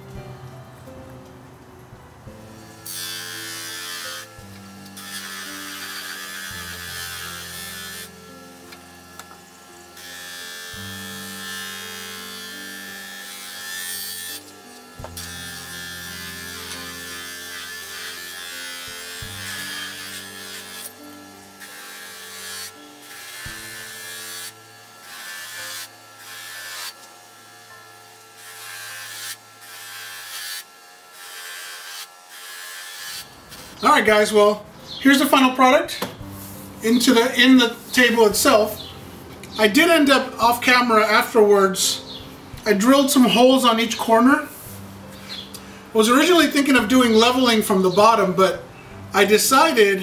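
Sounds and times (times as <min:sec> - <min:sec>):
bench grinder motor buzz: 0:02.2 - 0:35.6, 0:36.2 - 0:44.0
metal plate hissing on buffing wheel: 0:10.0 - 0:27.1.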